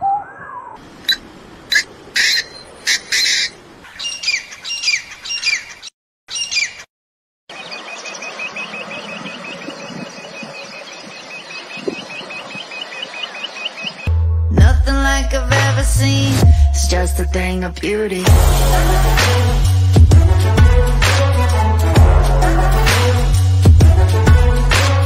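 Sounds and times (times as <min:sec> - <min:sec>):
harsh bird calls: 0:00.0 - 0:06.9, 0:07.5 - 0:14.1
quail calling: 0:00.0 - 0:06.9.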